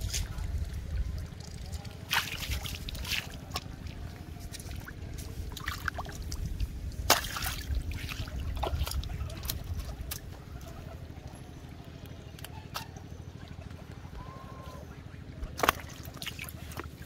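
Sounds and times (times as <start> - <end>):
fish splashing in shallow water: 0.0 - 11.6, 15.2 - 17.0
steady low rumble: 0.0 - 17.0.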